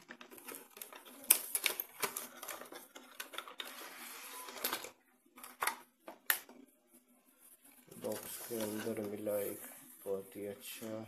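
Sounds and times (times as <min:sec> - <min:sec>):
cardboard and plastic rustling: 0:00.0 - 0:06.2, 0:07.5 - 0:11.0.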